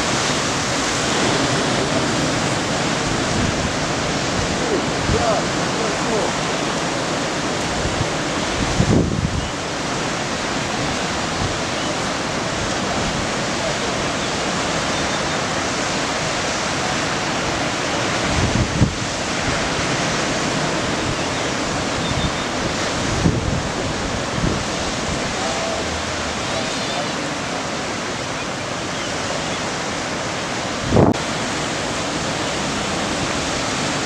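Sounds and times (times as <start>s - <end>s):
ocean waves breaking: 0.0s - 34.0s
wind buffeting microphone: 0.0s - 34.0s.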